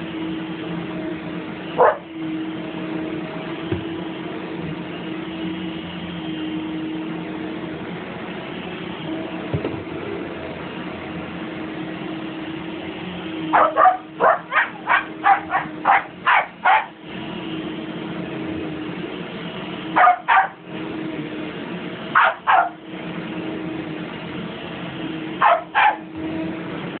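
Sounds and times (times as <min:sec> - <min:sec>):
vacuum cleaner humming: 0:00.0 - 0:05.6, 0:09.1 - 0:26.9
dog barking and yipping: 0:01.8 - 0:02.1, 0:13.5 - 0:17.0, 0:20.0 - 0:20.6, 0:22.2 - 0:22.8, 0:25.4 - 0:26.1.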